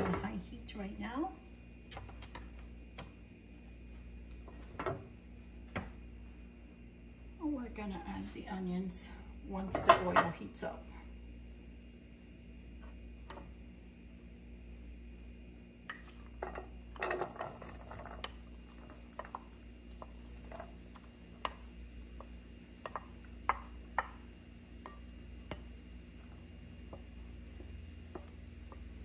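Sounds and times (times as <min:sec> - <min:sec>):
faint steady hum: 0:00.0 - 0:29.0
wooden spoon tapping bowl and pan: 0:17.9 - 0:25.8, 0:26.8 - 0:29.0.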